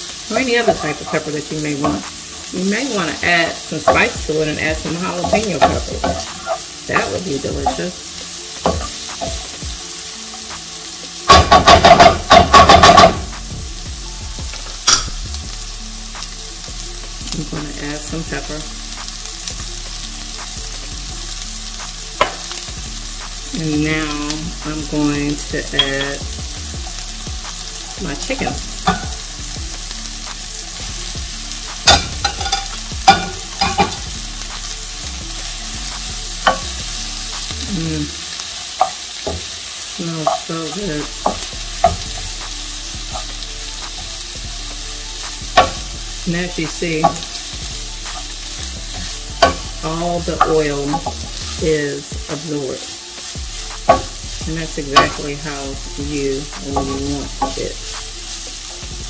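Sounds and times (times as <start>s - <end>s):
vegetables sizzling in oil: 0.0s - 59.0s
spatula clacking against pan: 11.3s - 13.3s, 31.7s - 34.7s.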